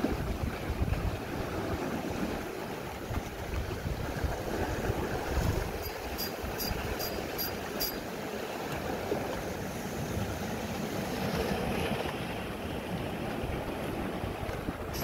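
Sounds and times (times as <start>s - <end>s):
wind on microphone: 0.0s - 8.2s, 9.9s - 15.0s
sea washing on rocky shore: 0.0s - 15.0s
sharp high ticks: 5.8s - 8.0s.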